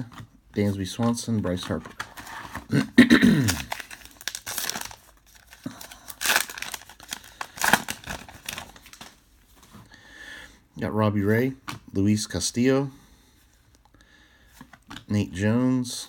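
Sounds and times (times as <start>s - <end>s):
wrapper tearing and crinkling: 3.4s - 9.2s.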